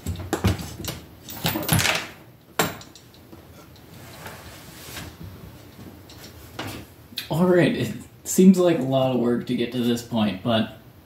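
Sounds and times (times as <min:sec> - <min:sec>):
metal knocks rattles and scraping: 0:00.0 - 0:04.5.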